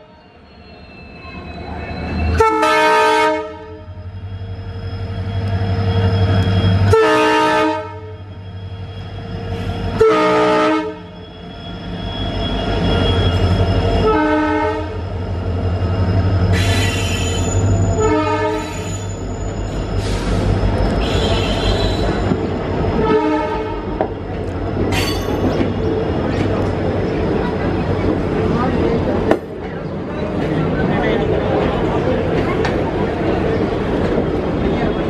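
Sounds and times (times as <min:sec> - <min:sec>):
train coaches rolling on rails: 0:00.0 - 0:35.0
locomotive horn blasts: 0:02.3 - 0:04.0, 0:06.8 - 0:08.3, 0:09.9 - 0:11.2, 0:14.0 - 0:15.0, 0:18.0 - 0:18.8, 0:23.0 - 0:23.9.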